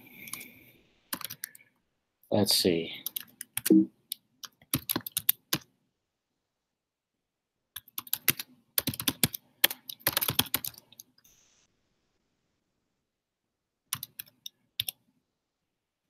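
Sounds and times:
computer keyboard typing: 1.1s - 1.6s, 3.0s - 5.7s, 7.8s - 11.1s, 13.9s - 15.0s.

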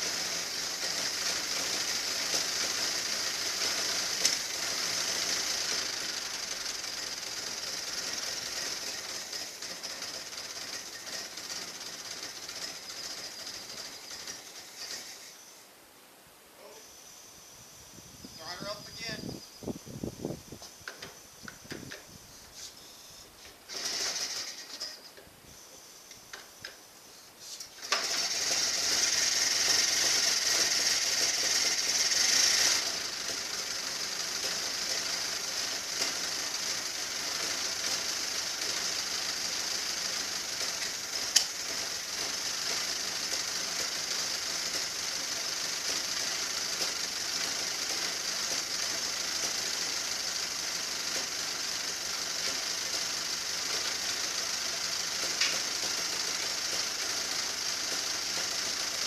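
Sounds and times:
car engine starting and idling: 0.0s - 15.5s, 27.7s - 59.0s.

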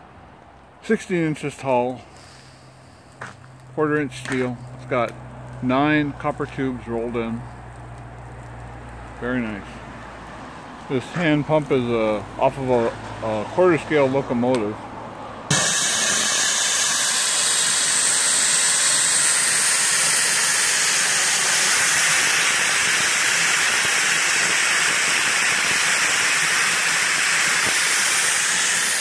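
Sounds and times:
safety valve steam hiss: 2.0s - 3.2s, 15.5s - 29.0s.

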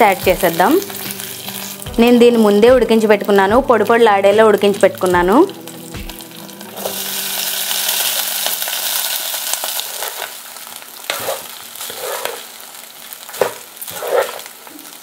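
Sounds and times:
rice sizzling in hot oil: 0.0s - 15.0s
spatula scraping rice in pan: 9.7s - 10.4s, 11.0s - 12.6s, 13.3s - 14.7s.

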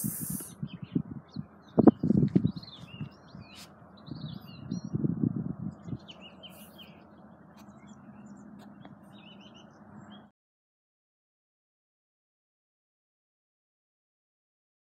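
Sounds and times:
wind rumbling on microphone: 0.0s - 10.2s
small birds chirping: 0.0s - 10.3s.

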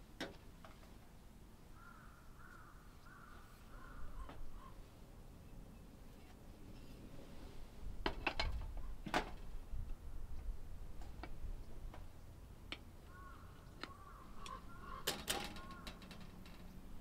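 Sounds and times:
sharp clicks and knocks: 13.8s - 16.8s.

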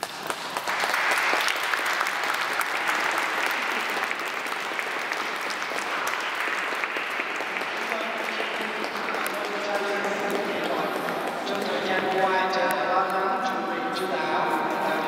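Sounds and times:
crowd applauding: 0.0s - 11.7s.

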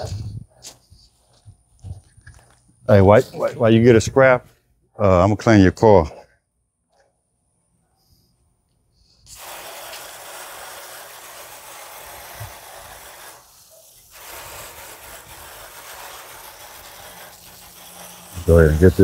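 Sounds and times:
hose nozzle spraying water: 9.2s - 19.0s.

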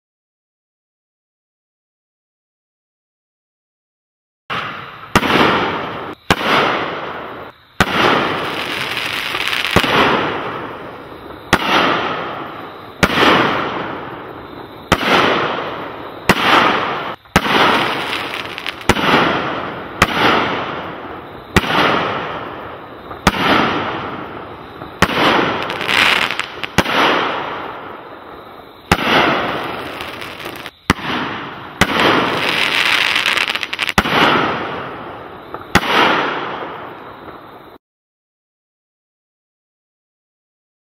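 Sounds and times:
firework shots firing: 4.5s - 28.0s, 28.8s - 37.4s.

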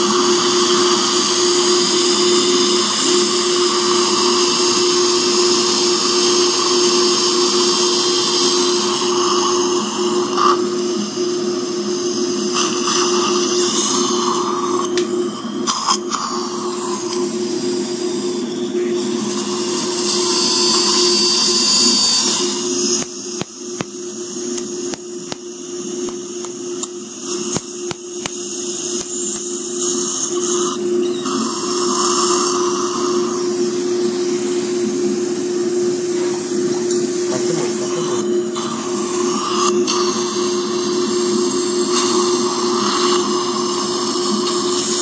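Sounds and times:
dental drill whine: 0.0s - 45.0s
suction hiss: 15.6s - 45.0s.

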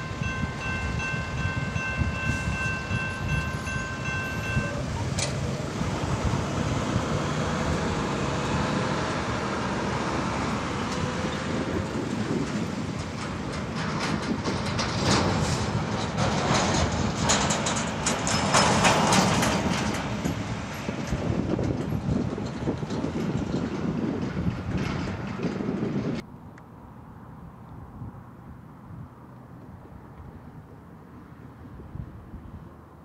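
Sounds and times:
diesel truck driving past: 0.0s - 26.2s
metallic clanks and rattles: 11.8s - 25.9s.

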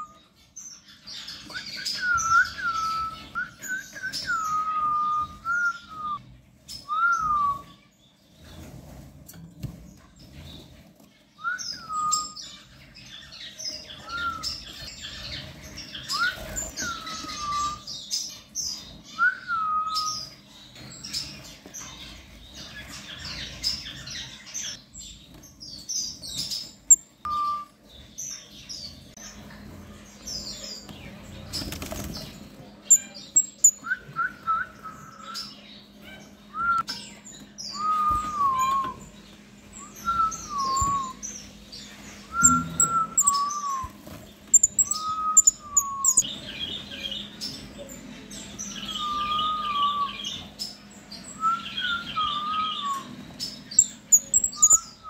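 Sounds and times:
finches twittering: 39.9s - 47.6s, 51.6s - 55.0s
downward sliding whistled notes: 42.3s - 43.9s.

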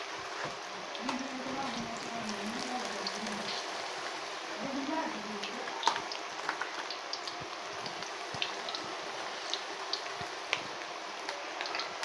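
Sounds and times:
food deep-frying in oil: 0.0s - 12.0s
oil crackling and popping: 5.0s - 12.0s.

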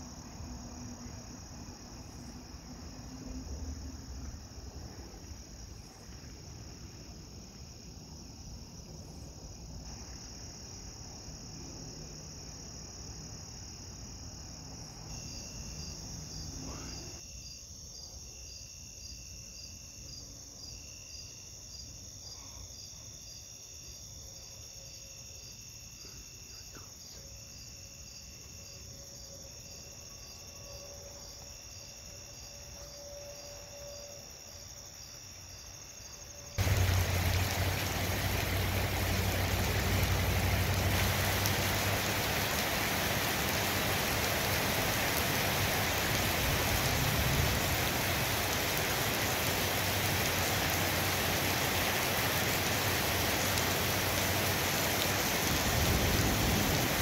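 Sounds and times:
crickets trilling: 0.0s - 57.0s
low cricket chirp: 0.0s - 57.0s
low rumbling noise: 36.6s - 42.1s.

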